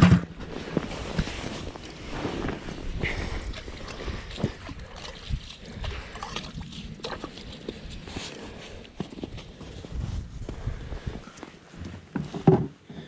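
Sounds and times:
wind on microphone: 0:09.8 - 0:11.3.

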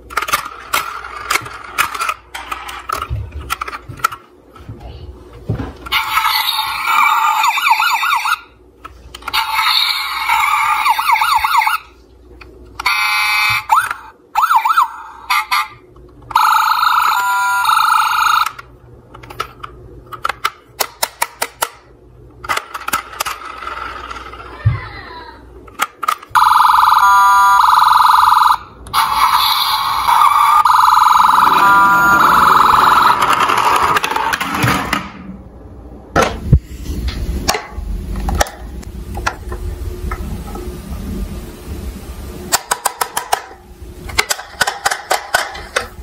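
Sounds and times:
plastic toy clicking and rattling: 0:00.0 - 0:04.2, 0:18.2 - 0:24.5, 0:44.2 - 0:46.0
toy siren wailing: 0:05.9 - 0:08.5, 0:09.3 - 0:11.9, 0:12.8 - 0:18.6, 0:26.4 - 0:33.4.

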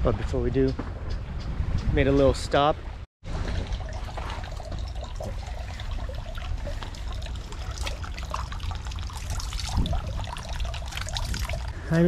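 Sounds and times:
water splashing from ladle: 0:03.3 - 0:11.8
water trickling into stone basin: 0:03.3 - 0:12.0.

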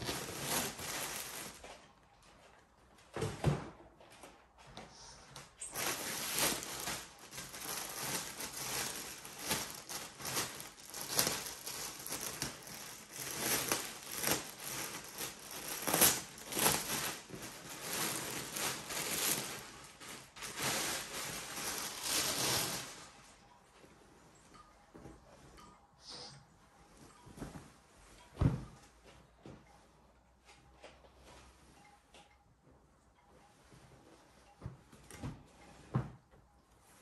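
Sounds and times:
plastic bag crinkling: 0:00.0 - 0:01.8, 0:05.6 - 0:23.4.

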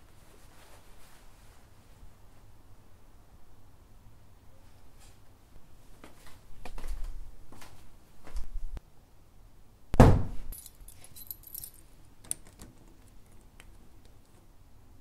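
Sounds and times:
door shutting with heavy thud: 0:10.0 - 0:10.5
keys jingling: 0:10.5 - 0:14.4.

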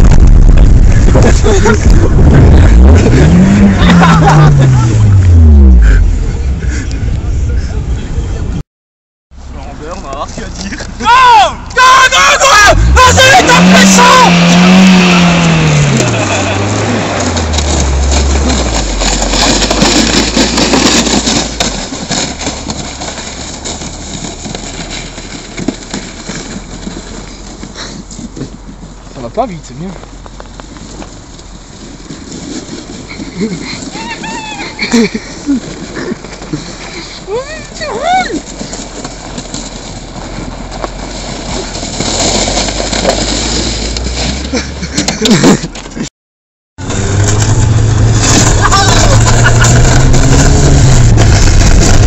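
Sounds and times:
car driving over snow: 0:00.0 - 0:08.6, 0:09.4 - 0:46.1, 0:46.8 - 0:52.0
person shouting: 0:11.0 - 0:14.6, 0:34.0 - 0:34.8, 0:48.6 - 0:49.4.

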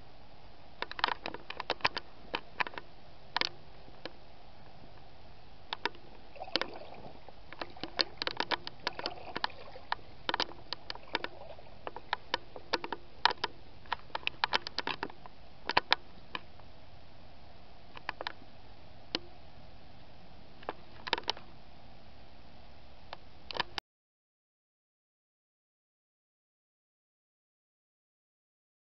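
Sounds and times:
steady hiss: 0:00.0 - 0:23.8
water splashing around wading boots: 0:06.3 - 0:13.4.

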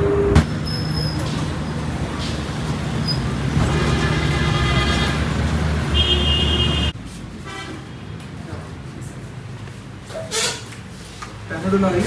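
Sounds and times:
vehicle engines running: 0:00.0 - 0:07.4
car horn: 0:03.6 - 0:05.3, 0:05.9 - 0:08.0.

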